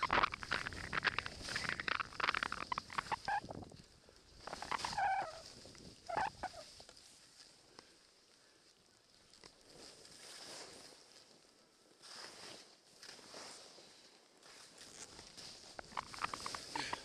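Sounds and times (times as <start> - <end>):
skis hissing through snow: 9.7 - 11.1, 12.0 - 17.0.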